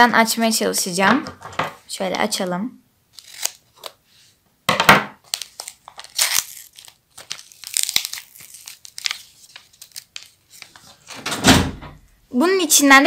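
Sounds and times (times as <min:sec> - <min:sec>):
paper rustling and tearing: 0:03.1 - 0:04.0, 0:05.2 - 0:11.1.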